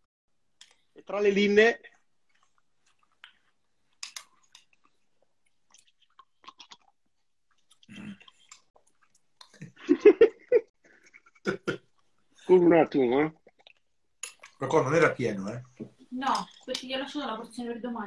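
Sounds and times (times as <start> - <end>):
person chewing: 1.9 - 9.8, 13.4 - 14.6
person laughing: 9.8 - 11.8.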